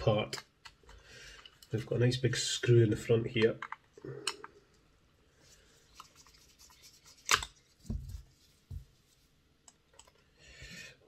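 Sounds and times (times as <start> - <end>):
soft thumps: 7.8 - 9.0.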